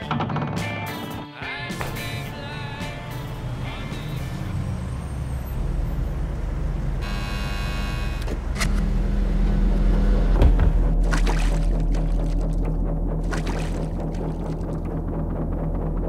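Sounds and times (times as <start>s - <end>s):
bright buzzing tone: 7.0s - 9.1s
low rumble: 8.9s - 16.0s.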